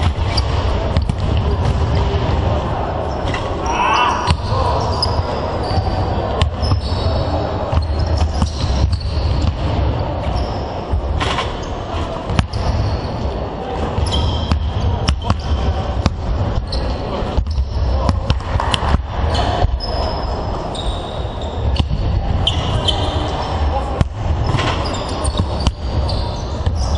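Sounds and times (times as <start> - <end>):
sneaker squeaks: 0.0 - 1.2, 3.1 - 16.0, 16.6 - 18.2, 19.3 - 26.9
basketballs bouncing on wooden floor: 0.0 - 2.4, 4.3 - 4.6, 7.7 - 9.8, 13.9 - 19.0, 24.0 - 26.9.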